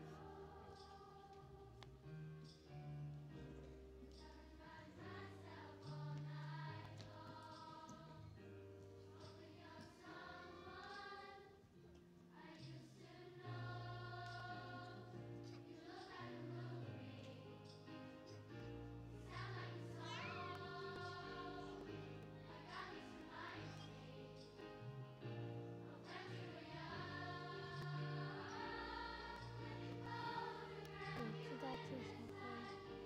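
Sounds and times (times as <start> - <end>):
children's choir singing: 0.0 - 1.9, 4.1 - 8.3, 9.0 - 11.6, 12.3 - 24.8, 25.7 - 33.0
low instrumental accompaniment: 24.3 - 33.0.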